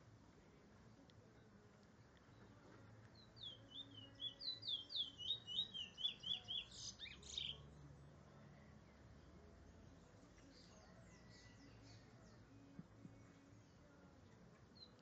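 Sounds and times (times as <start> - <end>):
finch singing whistled notes: 3.2 - 7.7.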